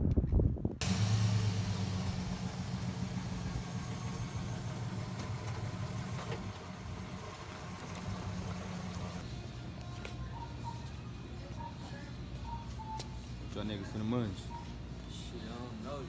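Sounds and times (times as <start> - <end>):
pickup truck engine idling: 0.8 - 9.2.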